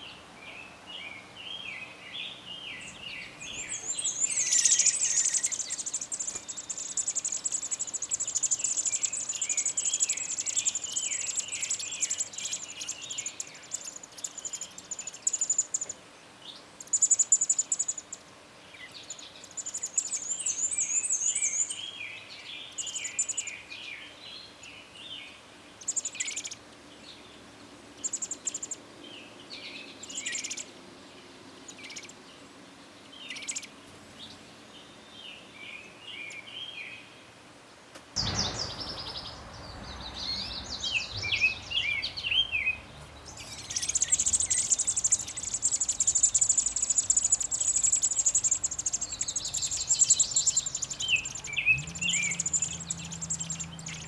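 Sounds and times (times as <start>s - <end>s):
nestlings cheeping: 3.6s - 15.9s, 43.3s - 54.0s.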